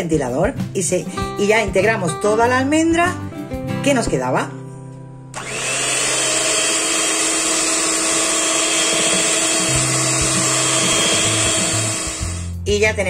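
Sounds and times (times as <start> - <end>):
electric mixer beating batter: 5.4 - 12.5.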